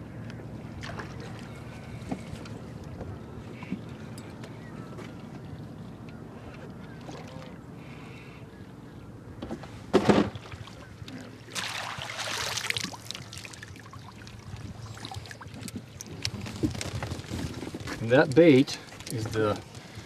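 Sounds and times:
water pouring from a net: 0:11.5 - 0:14.0
fish splash: 0:11.5 - 0:14.4.

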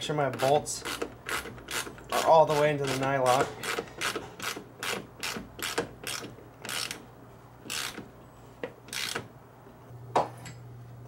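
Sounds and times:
ratchet wrench ratcheting: 0:00.4 - 0:03.0, 0:03.6 - 0:07.0, 0:07.7 - 0:08.0, 0:08.9 - 0:09.2.

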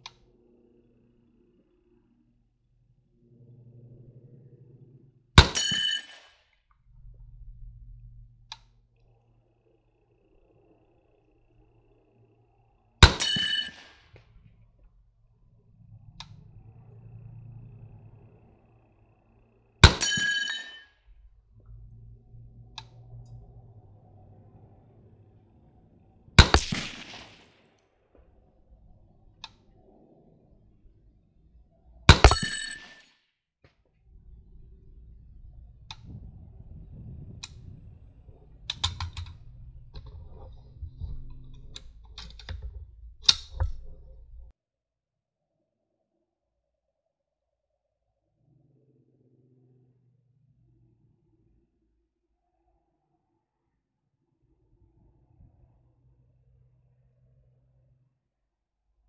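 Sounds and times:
faint low rumble: 0:00.0 - 0:05.4, 0:06.6 - 0:13.0, 0:13.7 - 0:19.9, 0:21.0 - 0:32.8, 0:33.8 - 0:44.5, 0:53.8 - 0:58.3
metallic ringing of steel target: 0:05.4 - 0:06.3, 0:13.0 - 0:14.0, 0:19.8 - 0:20.8, 0:26.4 - 0:27.3, 0:32.1 - 0:33.0
rifle shot: 0:13.0 - 0:13.9, 0:26.4 - 0:27.6, 0:32.1 - 0:32.9
rifle metallic clicks: 0:26.4 - 0:27.4.

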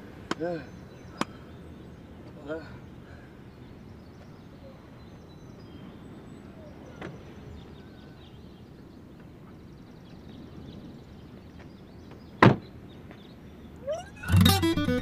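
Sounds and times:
faint chirps: 0:13.8 - 0:15.0.

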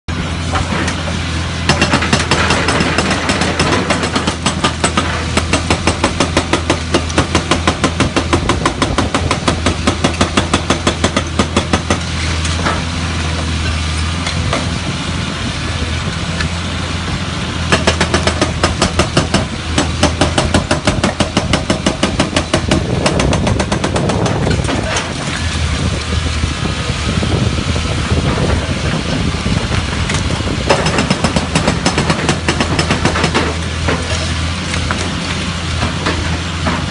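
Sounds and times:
diesel engine drone: 0:00.0 - 0:36.9
hydraulic breaker hammering rock: 0:00.4 - 0:14.8, 0:17.6 - 0:25.5, 0:29.9 - 0:36.9.

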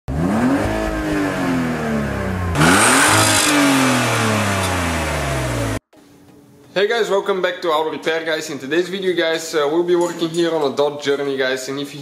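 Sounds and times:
car engine revving: 0:00.1 - 0:05.8.

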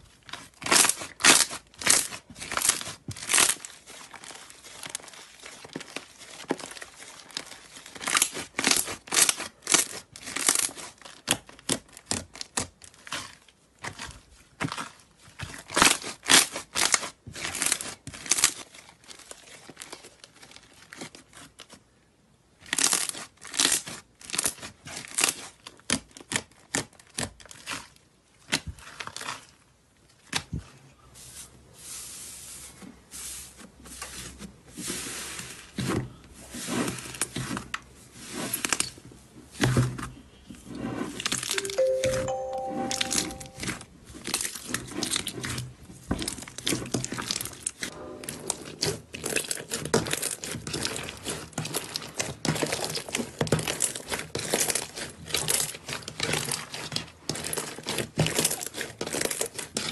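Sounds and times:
slime crackling and popping: 0:00.3 - 0:18.8
musical notes: 0:41.5 - 0:43.8.

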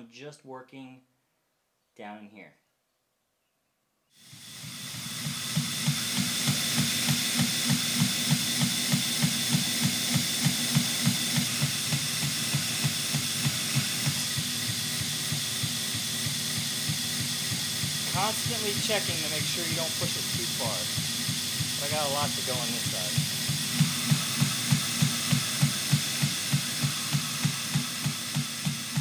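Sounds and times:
belt grinder grinding steel: 0:04.2 - 0:29.0
regular ticking: 0:04.6 - 0:29.0.

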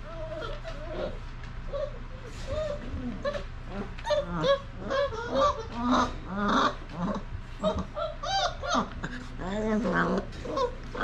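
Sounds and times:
puppies whining and yelping: 0:00.0 - 0:11.0.

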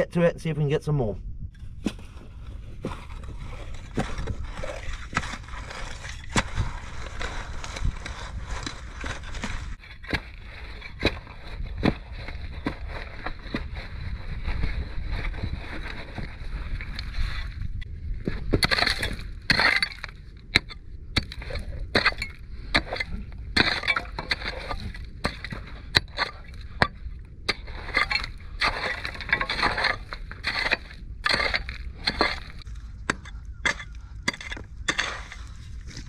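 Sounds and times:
stone scraping and clattering: 0:02.8 - 0:13.7, 0:18.5 - 0:36.0
metal tools striking rocks: 0:18.6 - 0:35.5.

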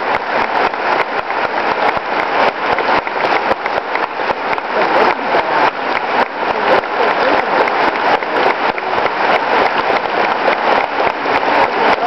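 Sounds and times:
crowd applauding: 0:00.0 - 0:12.0.

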